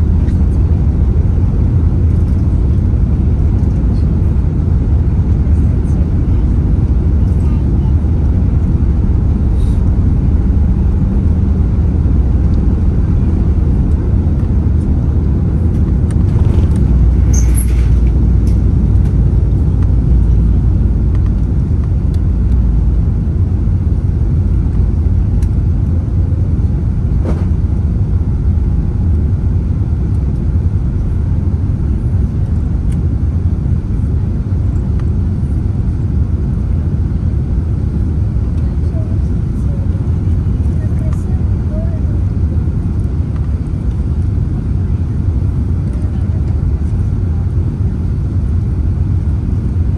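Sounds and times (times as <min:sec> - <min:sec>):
airliner engines rumbling on takeoff: 0:00.0 - 0:49.9.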